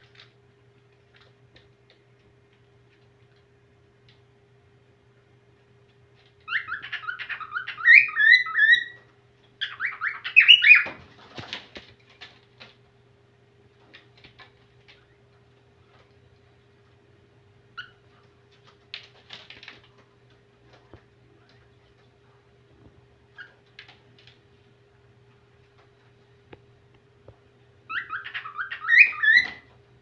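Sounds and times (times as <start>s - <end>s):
cockatiel whistling and chirping: 6.5s - 9.0s, 9.6s - 10.9s, 27.9s - 29.7s.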